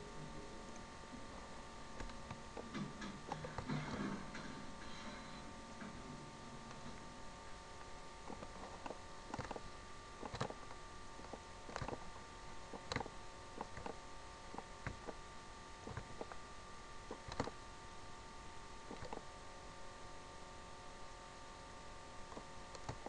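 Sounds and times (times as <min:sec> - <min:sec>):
faint electrical hum: 0:00.0 - 0:23.0
computer mouse clicking: 0:02.0 - 0:03.7, 0:08.3 - 0:09.6, 0:10.2 - 0:12.0, 0:12.7 - 0:15.2, 0:15.8 - 0:16.4, 0:17.1 - 0:17.6, 0:18.9 - 0:19.3, 0:22.3 - 0:23.0.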